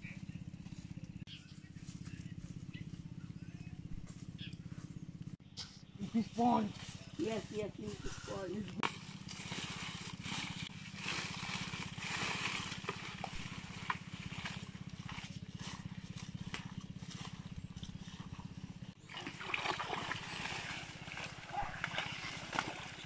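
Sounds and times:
wading in muddy water: 0:05.8 - 0:23.0
feet crunching through dry leaves: 0:06.0 - 0:19.0.

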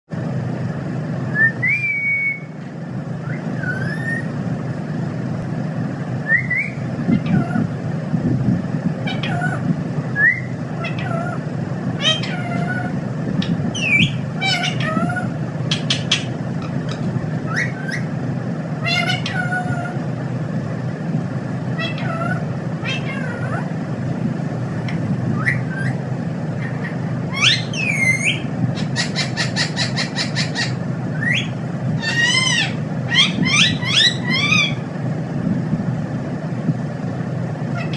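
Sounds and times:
steady low hum: 0:00.1 - 0:37.9
parakeet whistled calls: 0:01.3 - 0:02.6, 0:03.2 - 0:04.4, 0:06.2 - 0:07.7, 0:09.0 - 0:11.4, 0:12.0 - 0:18.1, 0:18.8 - 0:19.9, 0:21.8 - 0:23.6, 0:25.3 - 0:26.0, 0:26.6 - 0:34.8
parakeet chattering: 0:06.4 - 0:07.7, 0:09.0 - 0:09.7, 0:10.7 - 0:18.2, 0:18.8 - 0:20.1, 0:21.8 - 0:23.8, 0:26.6 - 0:34.9, 0:37.7 - 0:37.9.

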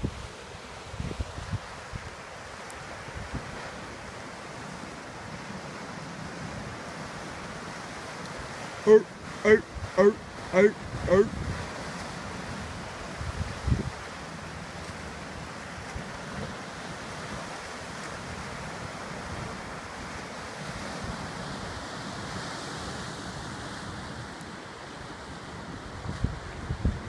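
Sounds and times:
surf washing over rocks: 0:00.0 - 0:27.0
wind buffeting microphone: 0:00.9 - 0:02.2, 0:02.9 - 0:07.9, 0:09.2 - 0:14.2, 0:25.4 - 0:27.0.

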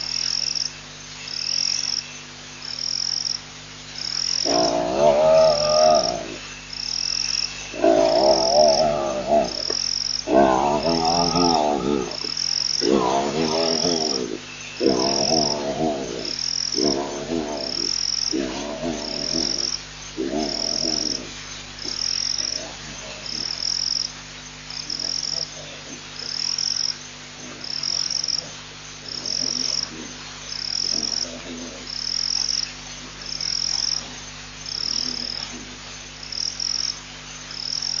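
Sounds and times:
low electrical hum: 0:00.0 - 0:38.0
drawn-out wavering animal calls: 0:04.1 - 0:24.1.

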